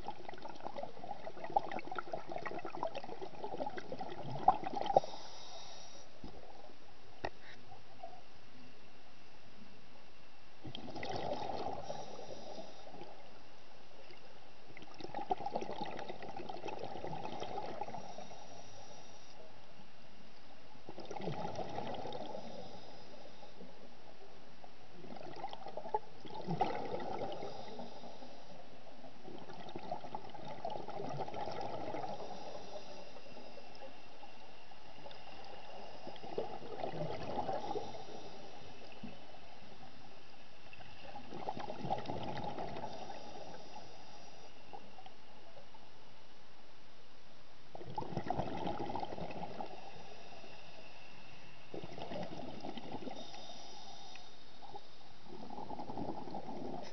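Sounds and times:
exhaled breath bubbling underwater: 0.0s - 6.6s, 10.6s - 13.3s, 14.8s - 19.2s, 20.9s - 23.7s, 25.0s - 34.0s, 34.6s - 40.1s, 40.7s - 45.1s, 47.8s - 56.9s.

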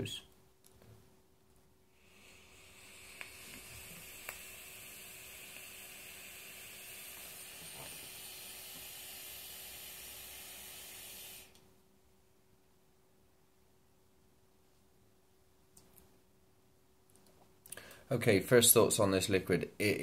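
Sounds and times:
vape coil hissing: 1.9s - 11.6s.

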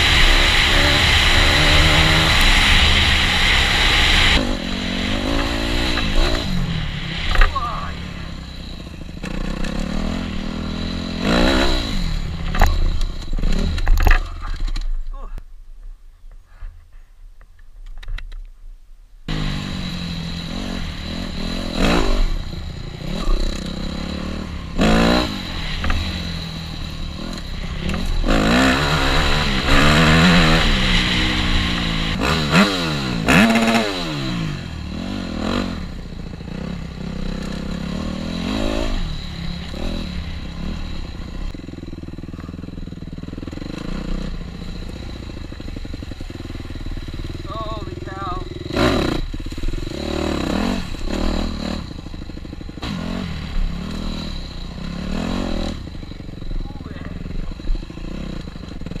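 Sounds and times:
dirt bike engine revving: 0.0s - 14.8s, 19.3s - 59.0s.

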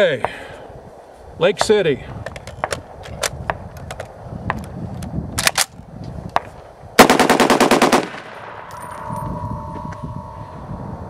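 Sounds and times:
rapid rifle shots: 7.0s - 8.5s.

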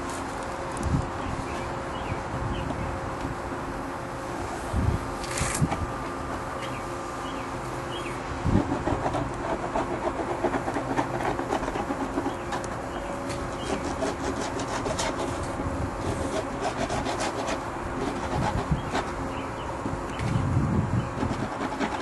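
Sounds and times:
hand tool rasping plastic edge: 21.2s - 22.0s.

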